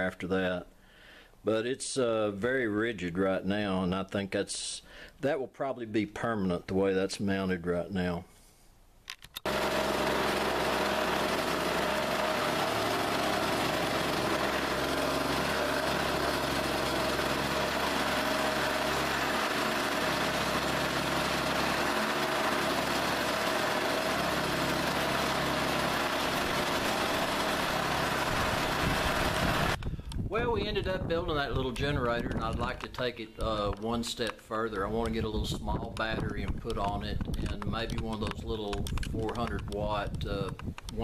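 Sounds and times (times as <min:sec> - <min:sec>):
small weed eater engine running: 0:09.5 - 0:29.8.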